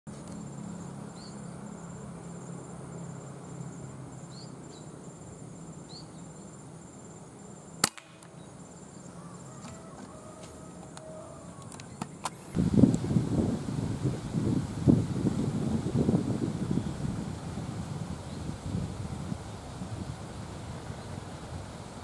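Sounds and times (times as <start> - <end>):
small bird chirping: 0.3 - 2.0, 4.2 - 6.6
air rifle shot: 7.8 - 8.2.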